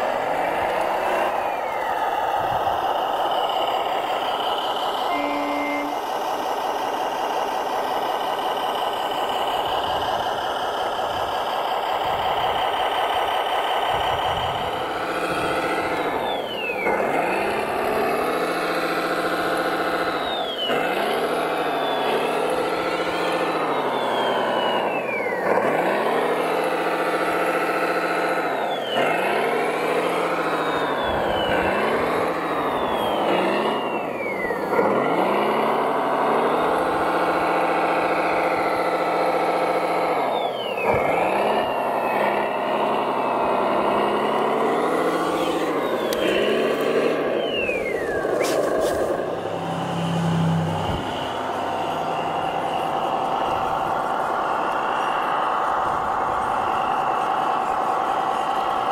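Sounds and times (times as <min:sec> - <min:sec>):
model truck engine running: 0:00.0 - 0:58.9.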